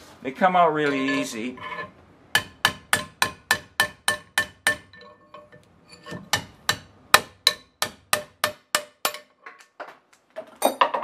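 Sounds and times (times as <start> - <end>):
hammer striking steel drift: 1.0 - 9.3.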